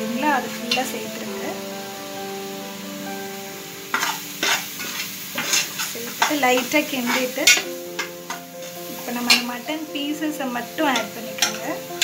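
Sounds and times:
spices sizzling in oil: 0.0s - 12.0s
spatula scraping a pan: 3.9s - 9.5s.

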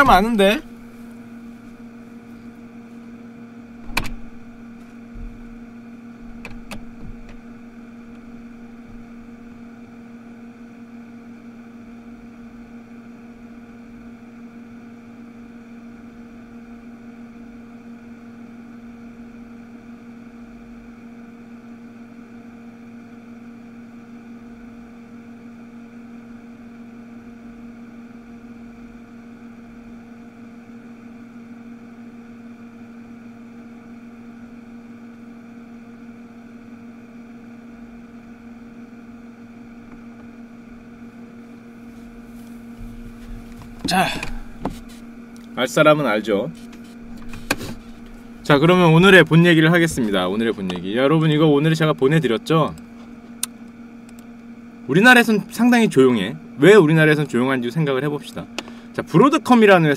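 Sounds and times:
electrical hum: 0.0s - 59.9s.

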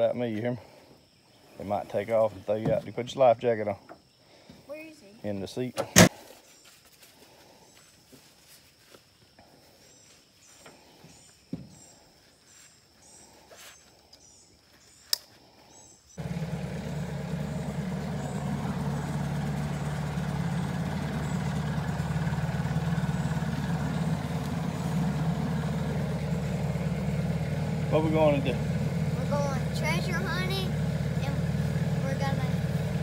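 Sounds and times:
outboard motor running: 16.2s - 33.0s.

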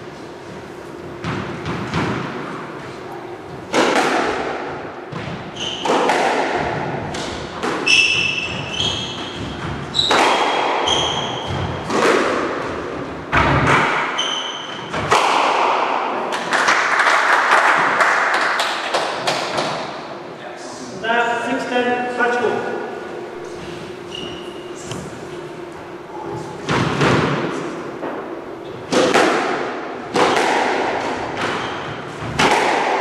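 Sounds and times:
squash ball hits: 1.2s - 2.9s, 3.5s - 20.0s, 26.6s - 33.0s
shoes squeaking on wooden floor: 7.8s - 10.1s, 31.5s - 32.2s.

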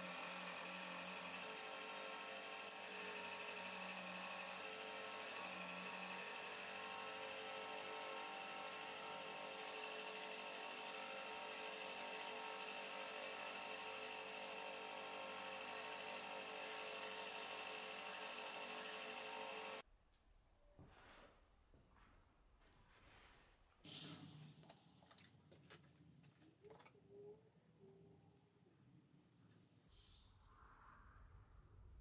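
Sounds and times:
belt grinder sanding wood: 0.0s - 19.8s.

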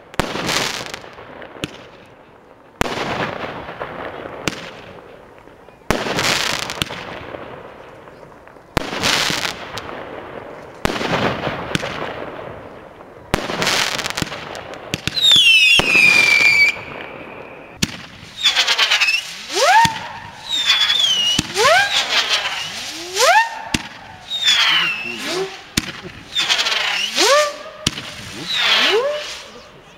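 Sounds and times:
firework launch shots: 0.0s - 2.0s, 2.8s - 5.1s, 5.9s - 29.6s
crackling firework bursts: 0.0s - 29.9s
firework whistles: 14.9s - 29.9s.

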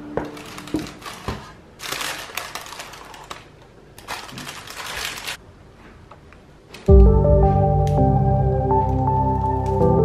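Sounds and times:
baking paper crinkling: 0.2s - 5.4s.

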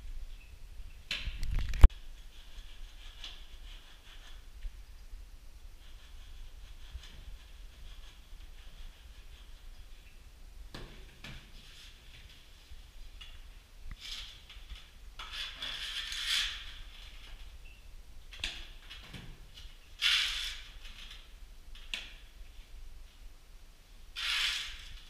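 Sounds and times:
trowel scraping wet plaster: 15.2s - 16.9s.

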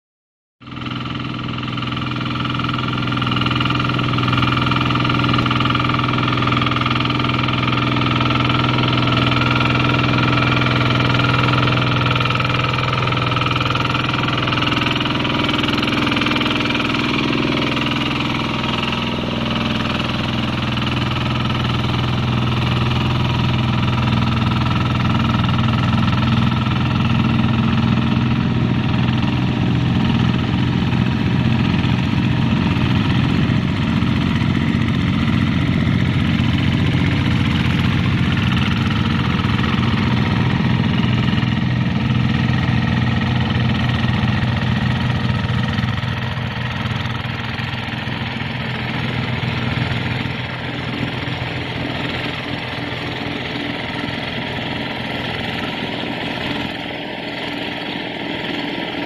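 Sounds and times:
hand tractor diesel engine running: 0.6s - 59.0s.

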